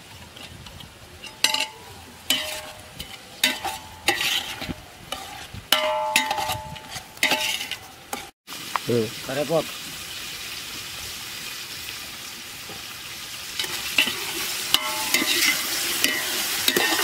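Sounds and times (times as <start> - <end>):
onions sizzling in oil: 0.0 - 17.0
metal spoon clanking in pot: 1.2 - 8.3, 13.6 - 17.0.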